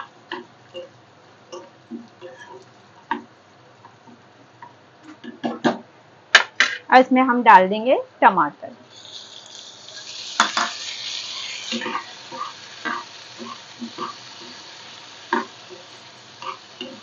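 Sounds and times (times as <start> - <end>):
tomatoes sizzling in hot oil: 0.0 - 4.2, 8.8 - 17.0
spoon scraping a pan: 0.3 - 3.3, 8.9 - 17.0.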